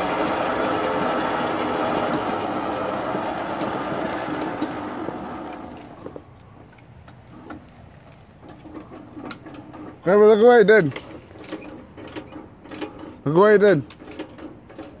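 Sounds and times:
mower frame rattling: 0.0s - 15.0s
tyres crunching over leaves: 0.2s - 8.6s.

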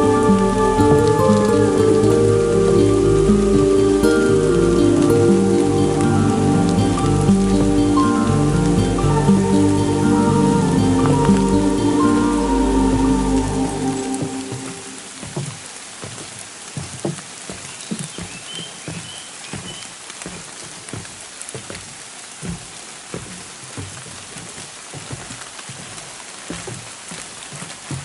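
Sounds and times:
light rain on leaves: 0.0s - 28.0s
footsteps on wet wooden boards: 12.8s - 28.0s.

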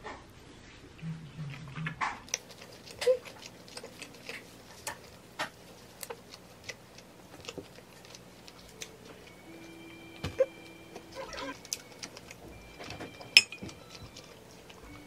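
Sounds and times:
fork clinking on ceramic plate: 13.3s - 13.7s.

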